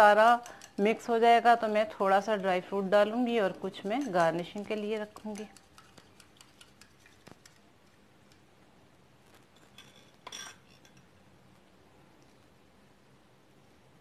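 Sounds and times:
wire whisk ticking against glass bowl: 0:00.0 - 0:01.1, 0:01.8 - 0:08.5.

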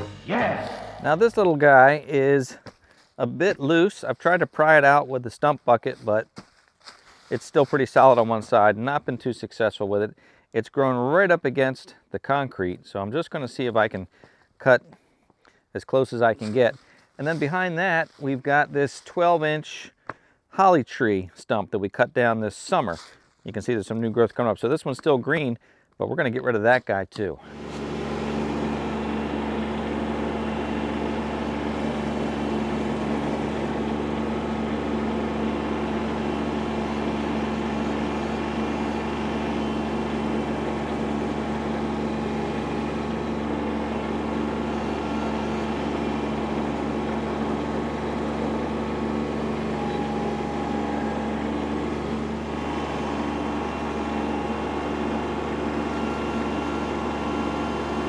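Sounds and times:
tractor diesel engine running: 0:00.0 - 0:06.2, 0:07.3 - 0:09.0, 0:27.4 - 0:58.0
stump grinder grinding: 0:27.4 - 0:58.0.

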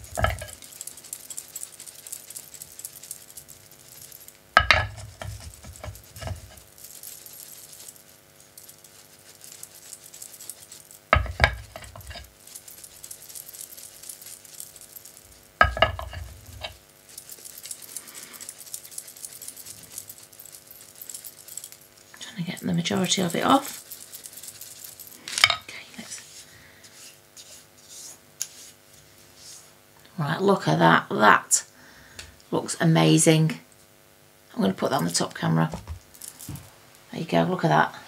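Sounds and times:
paintbrush brushing over glass: 0:00.0 - 0:29.8
faint steady hum: 0:00.0 - 0:38.0.

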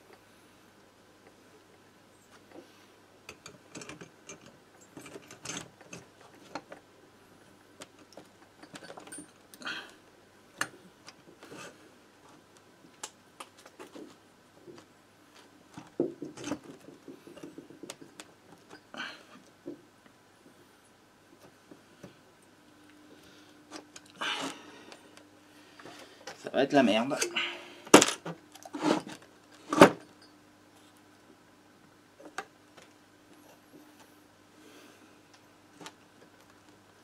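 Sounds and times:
small metal clicks and scrapes: 0:03.3 - 0:06.8.

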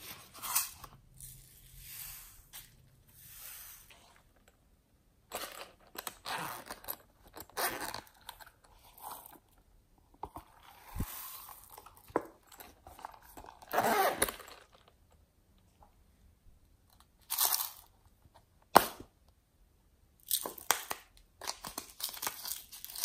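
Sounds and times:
toy crinkling and scraping: 0:10.2 - 0:15.0.

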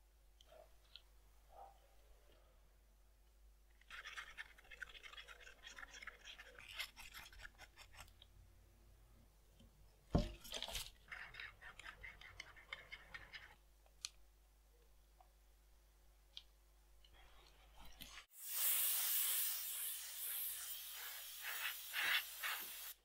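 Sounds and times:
brush strokes on cardboard: 0:17.2 - 0:23.0.

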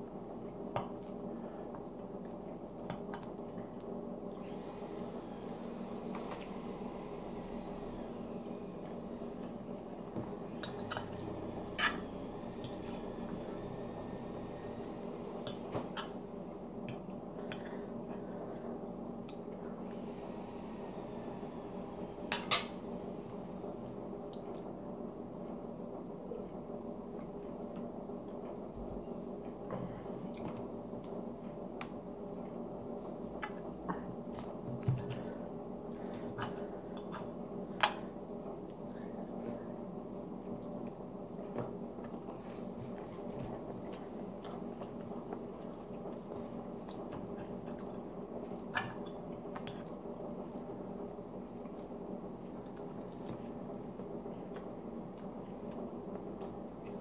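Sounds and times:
steady background hum: 0:00.0 - 0:57.0
chewing: 0:40.4 - 0:57.0.

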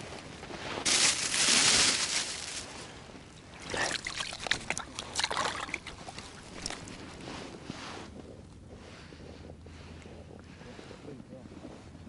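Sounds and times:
water splashing and dripping: 0:03.6 - 0:07.0.

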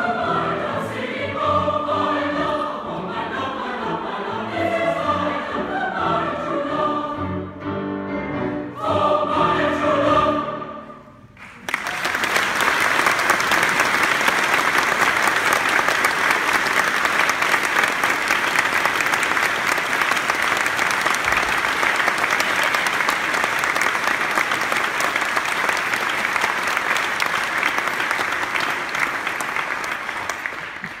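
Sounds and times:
audience applauding: 0:11.4 - 0:31.0.

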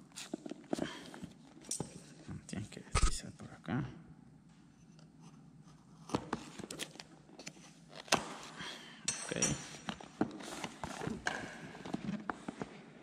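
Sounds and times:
metal clinking on stone: 0:09.1 - 0:09.7.

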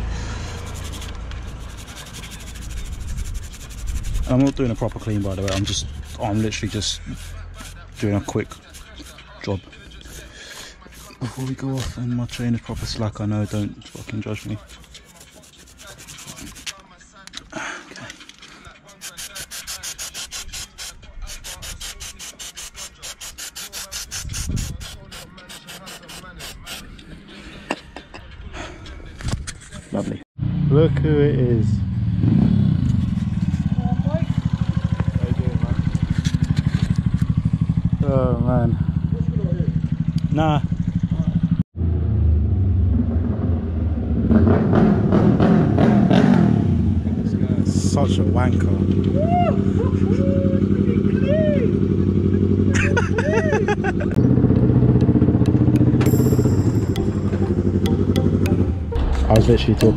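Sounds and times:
aerosol spray hissing in pulses: 0:19.0 - 0:26.8
motorcycle riding up: 0:30.4 - 0:59.2
motorcycle engine idling: 0:33.2 - 0:41.6.

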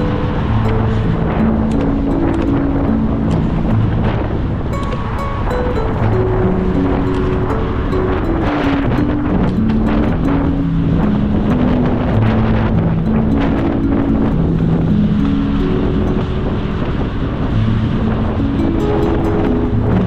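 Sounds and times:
slow background music: 0:00.0 - 0:20.0
wind noise on microphone: 0:00.0 - 0:20.0.

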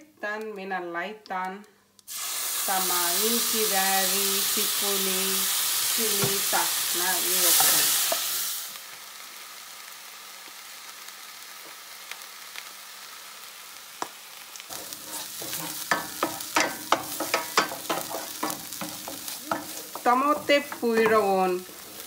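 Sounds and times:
paste sizzling in a pan: 0:02.1 - 0:22.0
wooden spoon scraping a pan: 0:14.7 - 0:22.0.

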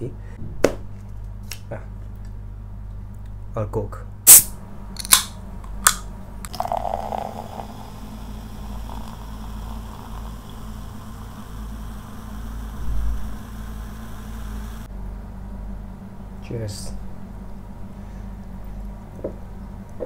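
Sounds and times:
can tab clicks: 0:04.3 - 0:06.6
cola fizzing hiss: 0:06.5 - 0:14.9.

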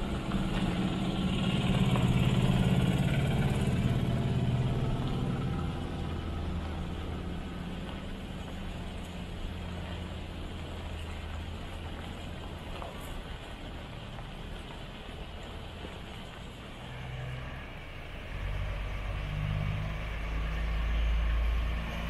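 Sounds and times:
diesel truck engine running: 0:00.0 - 0:14.0.

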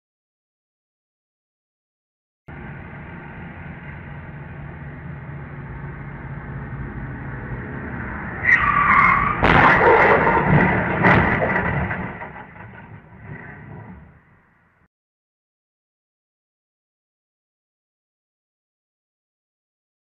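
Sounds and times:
loud vehicle crash: 0:05.5 - 0:14.9
tyres squealing in a skid: 0:08.0 - 0:14.3
debris clattering: 0:09.0 - 0:14.3.

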